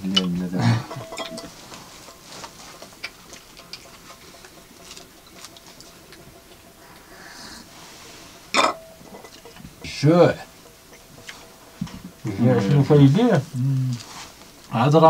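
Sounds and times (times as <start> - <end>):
clicks and taps of eating: 0.0 - 1.6, 2.4 - 6.7.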